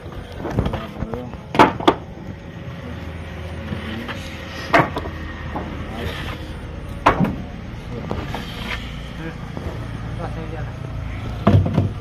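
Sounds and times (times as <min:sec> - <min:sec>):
loud knocks of timber: 0:01.5 - 0:02.0, 0:04.7 - 0:05.7, 0:07.0 - 0:07.4, 0:11.4 - 0:12.0.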